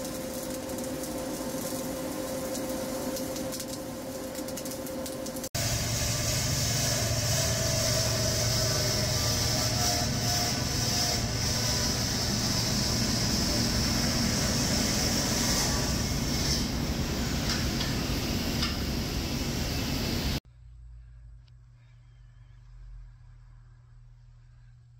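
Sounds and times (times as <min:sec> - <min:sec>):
machinery droning: 0:00.0 - 0:21.8.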